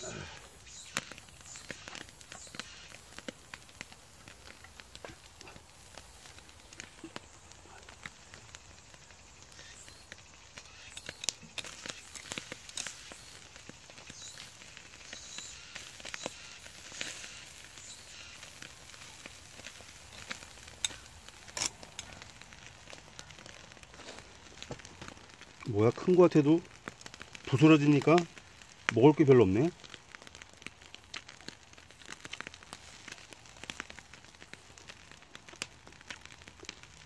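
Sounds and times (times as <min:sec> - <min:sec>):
campfire crackling: 0:00.0 - 0:37.0
fish sizzling on a grill: 0:00.0 - 0:37.0
sharp clicks and snaps: 0:09.5 - 0:14.5, 0:19.6 - 0:22.3.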